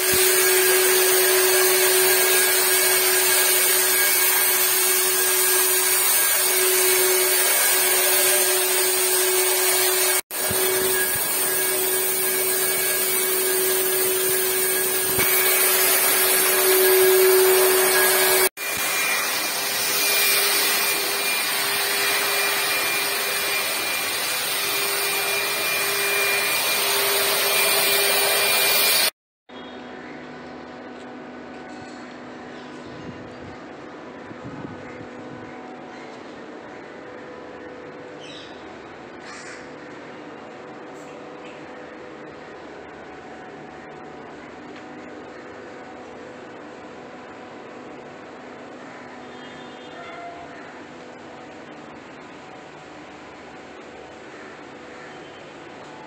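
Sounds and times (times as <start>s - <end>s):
disinfectant fogger blower motor: 0.0s - 29.2s.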